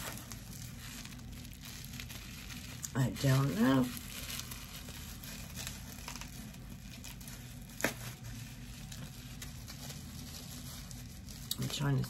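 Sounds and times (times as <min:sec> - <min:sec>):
plastic bag crinkling: 0:00.0 - 0:12.0.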